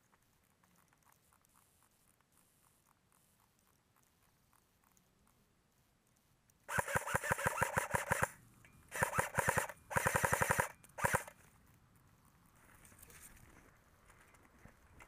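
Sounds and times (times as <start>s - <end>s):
airsoft gun firing full auto: 6.7s - 11.3s
gearbox whirring: 6.7s - 11.4s.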